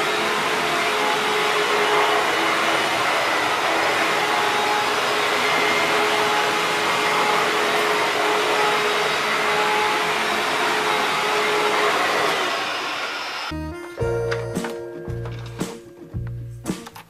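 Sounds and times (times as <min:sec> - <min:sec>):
upright vacuum cleaner running: 0:00.0 - 0:16.3.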